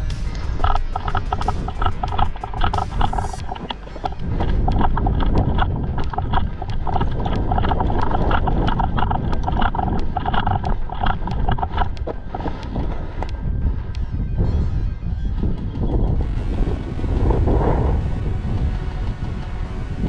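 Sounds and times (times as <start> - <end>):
gear rattling: 0.0 - 13.2
footsteps on tarmac: 0.0 - 14.1
wind rumble on microphone: 0.0 - 20.0.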